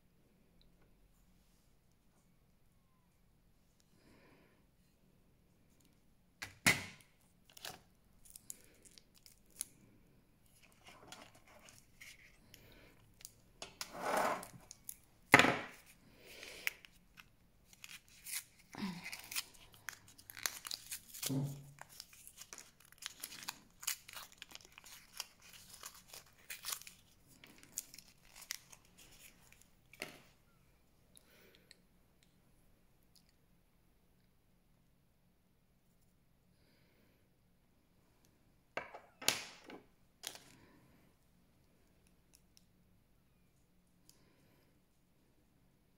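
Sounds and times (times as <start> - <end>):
plastic wrapping crinkling and tearing: 7.4 - 9.8, 15.7 - 30.0.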